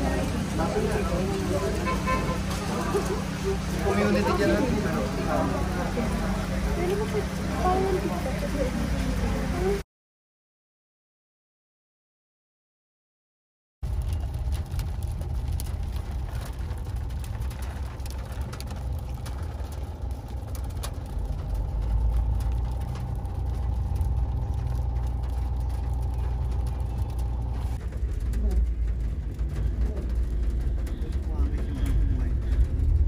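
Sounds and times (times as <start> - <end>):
car road rumble: 0.0 - 9.8, 13.8 - 33.0
grit and stones ticking on car: 13.8 - 33.0
faint steady hum: 13.9 - 33.0.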